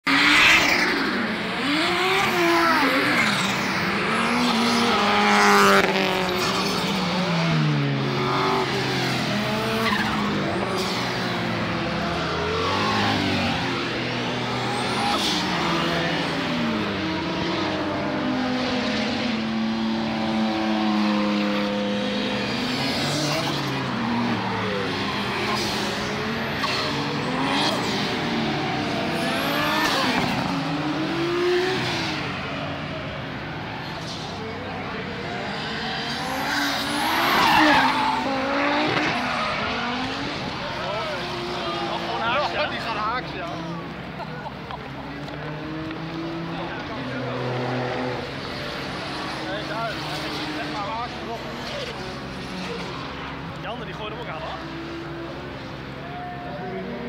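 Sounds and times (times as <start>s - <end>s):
race car engines revving: 0.0s - 57.0s
tyre squeal: 36.2s - 40.2s.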